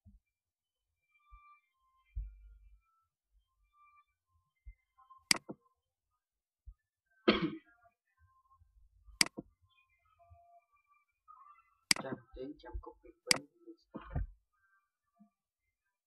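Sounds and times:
computer mouse clicking: 5.3 - 5.6, 9.2 - 9.4, 11.9 - 12.1
short cough: 7.3 - 7.6.

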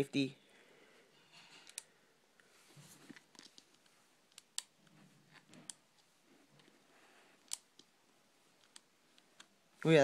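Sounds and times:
soft rustling: 2.4 - 4.2.

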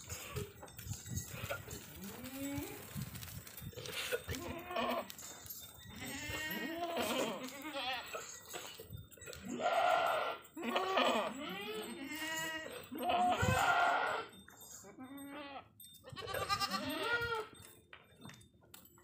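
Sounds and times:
goats bleating: 4.0 - 5.2, 6.0 - 8.7, 9.3 - 14.3, 15.1 - 17.6.

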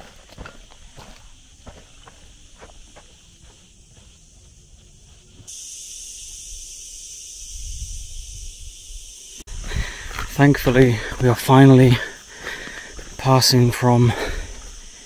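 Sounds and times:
footsteps on dirt track: 0.0 - 5.6, 9.6 - 15.0
cicadas buzzing: 0.0 - 15.0.

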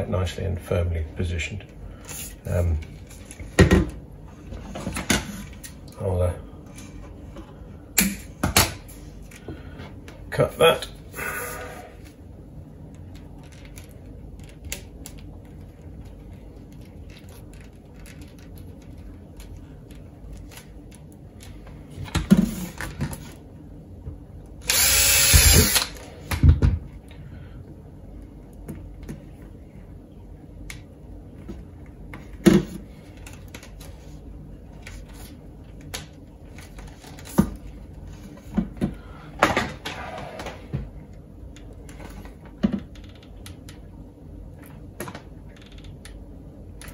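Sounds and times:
cordless drill running: 24.6 - 26.0.

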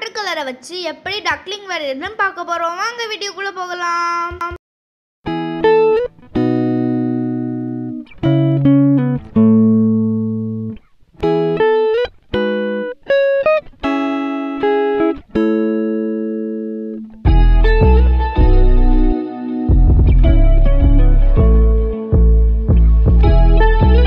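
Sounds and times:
instrumental chords ringing: 5.3 - 24.0.

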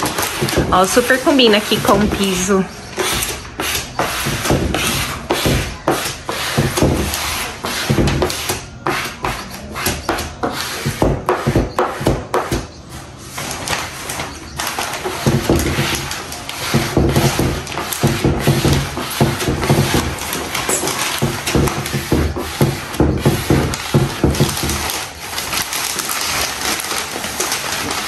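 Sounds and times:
plastic sheet rustling and scraping: 0.0 - 28.0.

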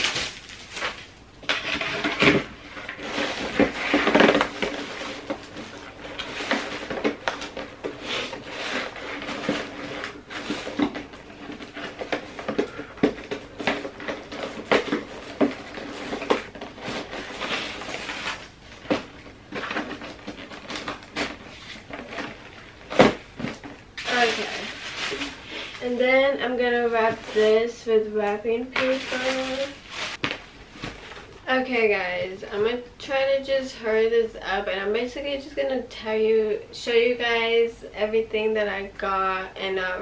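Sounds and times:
tissue paper rustling: 13.5 - 18.8, 24.0 - 26.0, 28.8 - 30.2.

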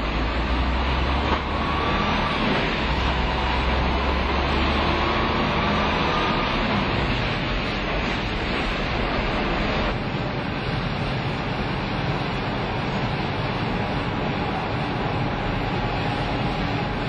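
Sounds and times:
truck rumbling on test rollers: 0.0 - 10.6
faint rising whine: 0.0 - 17.0.

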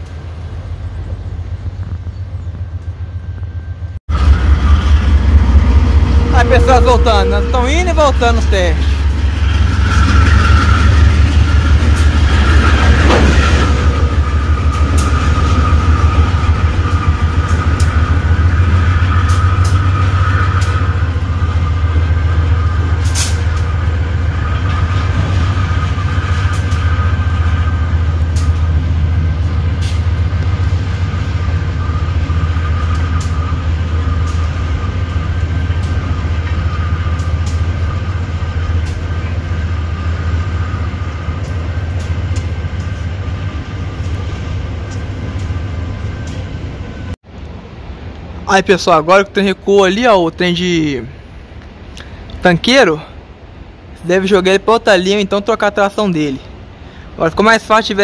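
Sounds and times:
high whine: 0.0 - 54.2
diesel locomotive engine drone: 0.0 - 58.0
wheels clicking over rail joints: 22.0 - 46.6.

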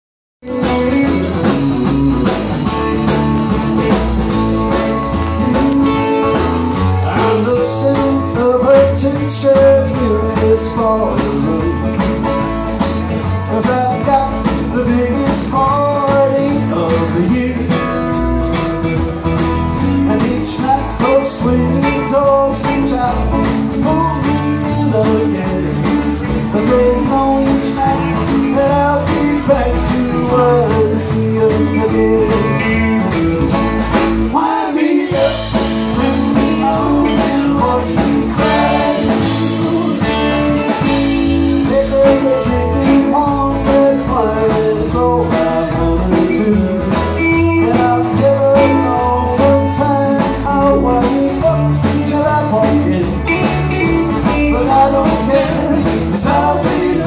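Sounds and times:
country band playing: 0.4 - 57.0.

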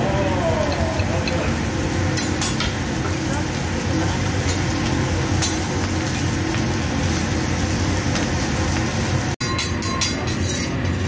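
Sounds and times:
food sizzling on a griddle: 0.0 - 9.4.

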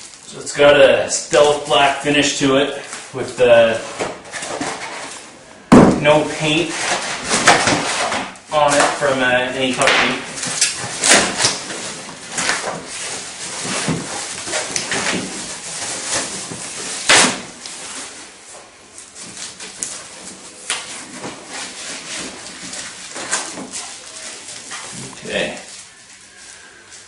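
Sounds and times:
packaging rustling and crinkling: 6.5 - 27.0
sharp snap: 9.8 - 11.6.

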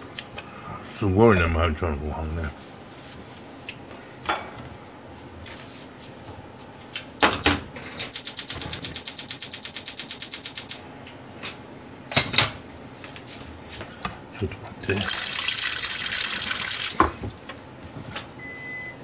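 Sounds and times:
rapid sharp clicks: 8.1 - 10.8.

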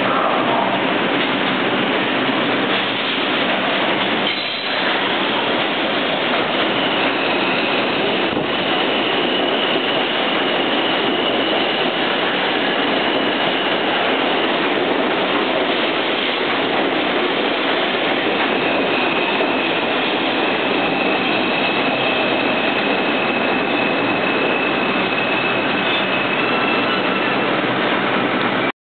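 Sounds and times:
subway train wheels rushing on rail: 0.0 - 28.7
high-pitched wheel squeal: 4.2 - 14.2, 18.5 - 27.6.

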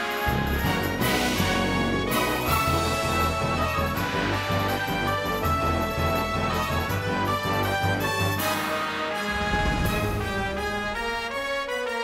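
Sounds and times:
instrumental theme music: 0.0 - 12.0.

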